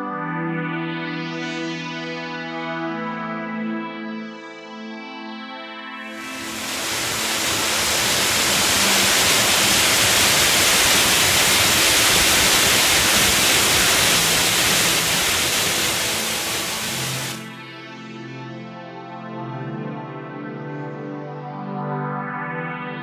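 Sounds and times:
waterfall pouring over rocks: 6.2s - 17.4s.

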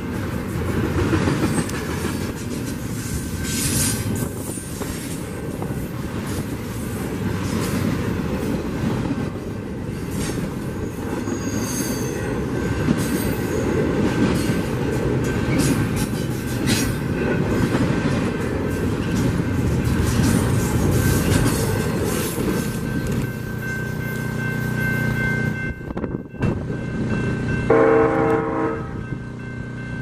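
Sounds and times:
freight train wheels rumbling: 0.0s - 30.0s
high wheel squeals: 10.8s - 13.8s.

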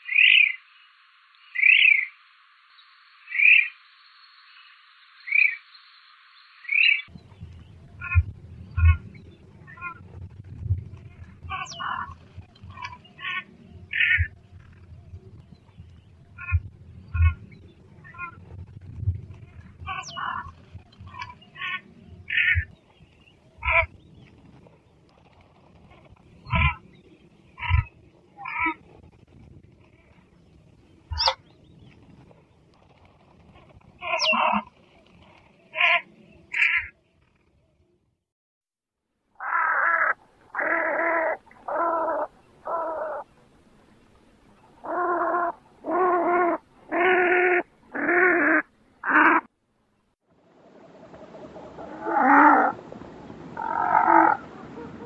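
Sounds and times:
duck calling: 44.8s - 49.5s.

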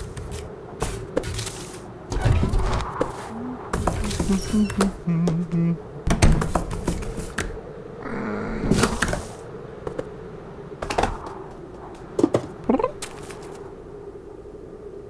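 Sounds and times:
cartoon low vocal sound: 4.3s - 5.9s, 8.0s - 9.0s, 12.6s - 13.0s.

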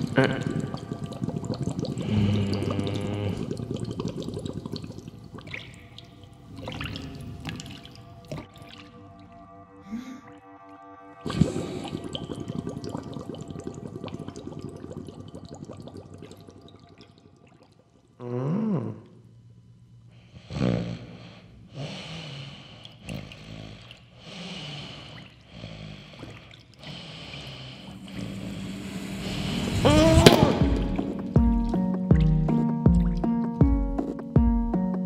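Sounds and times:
cartoon bubbly bursts: 0.0s - 8.8s, 11.2s - 17.8s, 27.9s - 33.3s
fizzing hiss: 27.3s - 31.3s
cartoon sliding pitch sound: 29.2s - 31.1s.

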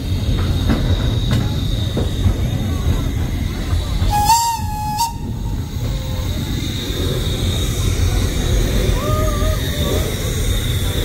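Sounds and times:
train running rumble: 0.0s - 11.0s
steam locomotive whistle blast: 4.1s - 5.8s.

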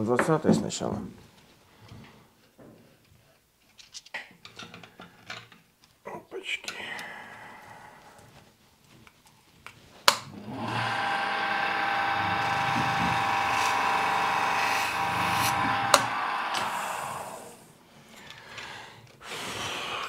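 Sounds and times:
polishing motor whine: 10.3s - 17.6s.

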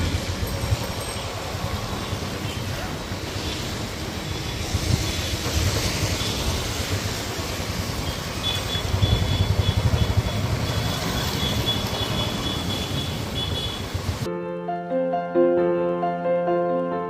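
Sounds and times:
wind rumble on microphone: 0.0s - 2.3s, 4.1s - 7.9s
road traffic noise: 0.0s - 14.3s.

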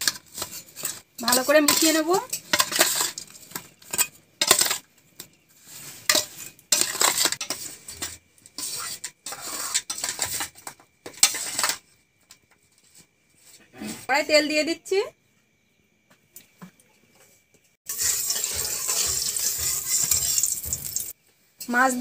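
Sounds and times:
metal spoon scraping steel plate: 0.0s - 3.3s, 5.7s - 11.8s, 17.9s - 21.1s.

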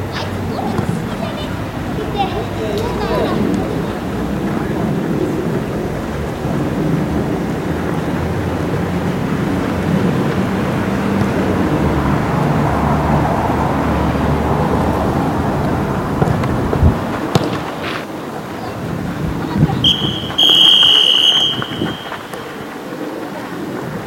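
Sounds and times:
wind rumble on microphone: 0.0s - 20.4s, 21.4s - 24.0s
referee's whistle: 19.8s - 22.8s.

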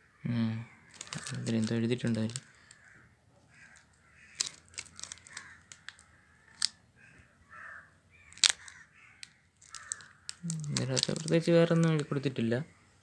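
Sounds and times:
plastic wrapper crinkling: 0.9s - 2.9s, 3.6s - 6.8s, 8.2s - 12.3s.

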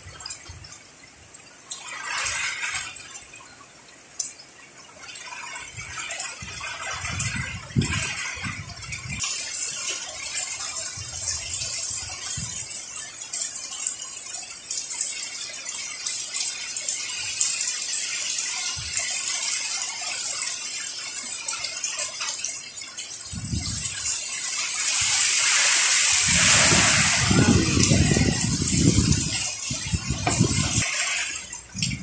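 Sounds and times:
heavy rain: 4.2s - 32.0s
storm wind rattling: 5.5s - 13.1s, 23.1s - 32.0s
wind gusts buffeting microphone: 5.7s - 9.3s, 10.8s - 12.8s, 23.2s - 24.2s, 24.9s - 32.0s.

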